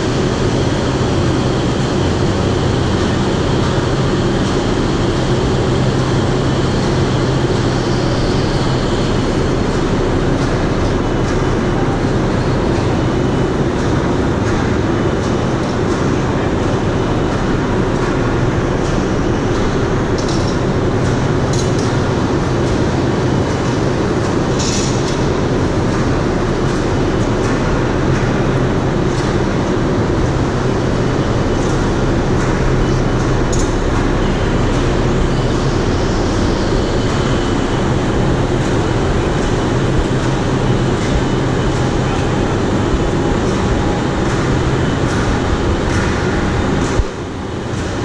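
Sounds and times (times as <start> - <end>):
crane mechanical rumble: 0.0 - 48.0.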